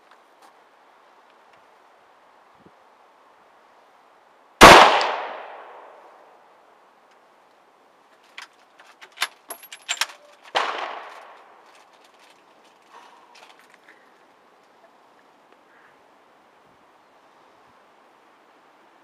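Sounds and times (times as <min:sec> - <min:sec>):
rifle shot: 0:04.6 - 0:05.9, 0:10.5 - 0:11.2.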